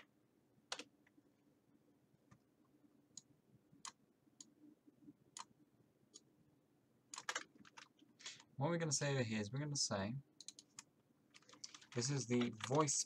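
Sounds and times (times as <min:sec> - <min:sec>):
computer mouse clicks: 0:10.4 - 0:12.8.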